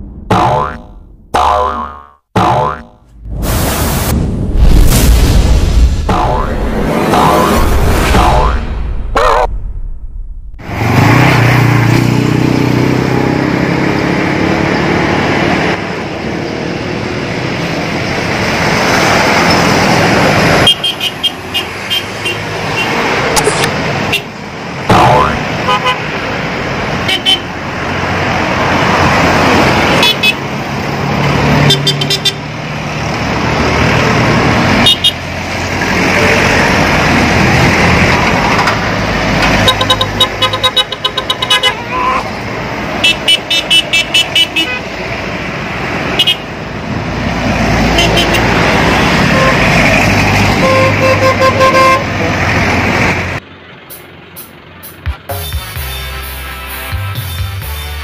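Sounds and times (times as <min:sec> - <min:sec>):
cars driving past: 0:10.6 - 0:55.3
car horn toots: 0:25.2 - 0:26.1, 0:39.6 - 0:42.3, 0:43.0 - 0:44.9, 0:48.0 - 0:48.5, 0:49.3 - 0:49.7, 0:50.6 - 0:52.1.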